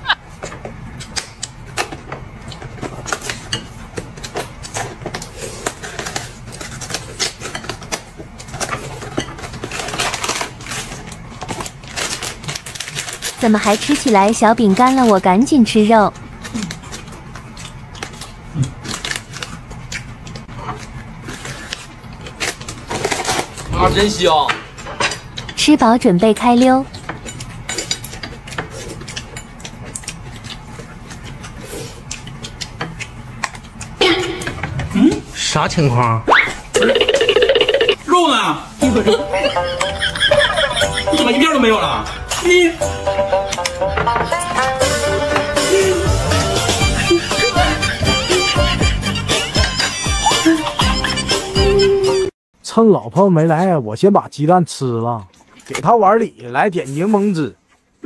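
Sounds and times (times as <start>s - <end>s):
crunching lettuce chewing: 1.0s - 14.0s, 16.2s - 23.7s, 26.9s - 34.5s
cookie packet rustling: 5.4s - 15.2s.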